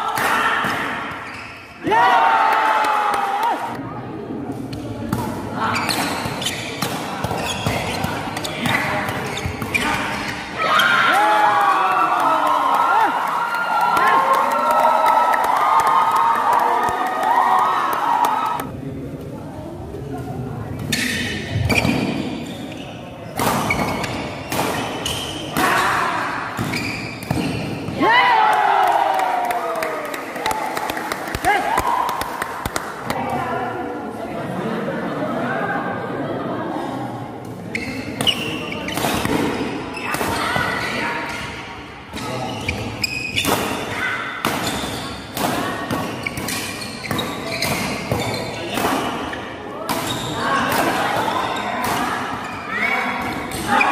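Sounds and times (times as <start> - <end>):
court shoes squeaking: 1.1 - 1.8, 4.8 - 10.8, 20.7 - 25.8, 26.6 - 28.0, 37.4 - 53.9.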